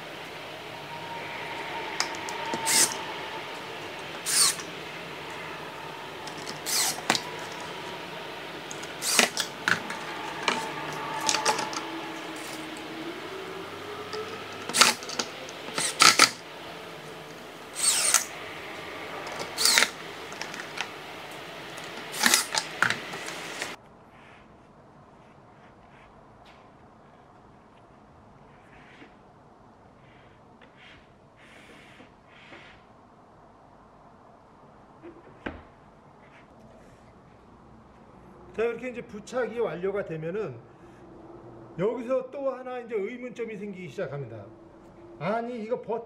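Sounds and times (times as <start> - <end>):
cordless drill driving screws: 2.0 - 3.0, 4.2 - 4.6, 6.3 - 7.7, 8.7 - 11.7, 14.7 - 16.4, 17.8 - 18.3, 19.2 - 20.9, 21.8 - 23.7.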